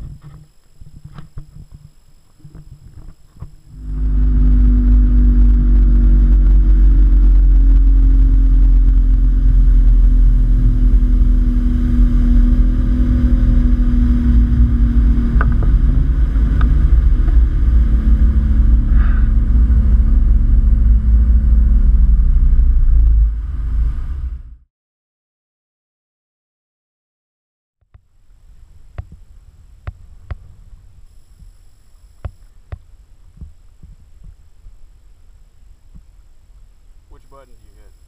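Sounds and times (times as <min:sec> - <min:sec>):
outboard motor running: 0:00.0 - 0:23.7
wind rumble on microphone: 0:00.0 - 0:24.6, 0:28.1 - 0:36.9.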